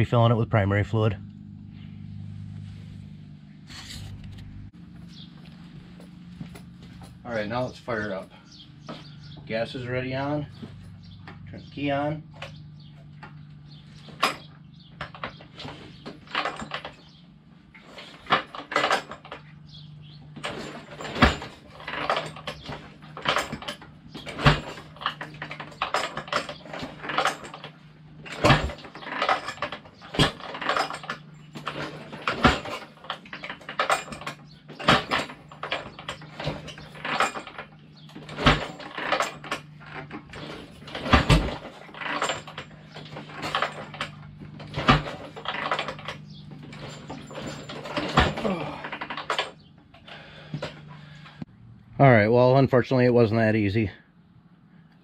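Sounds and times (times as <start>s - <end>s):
engine clatter: 0.0s - 51.5s
steady low hum: 0.0s - 52.4s
motorcycle kick-start clank: 5.9s - 51.4s.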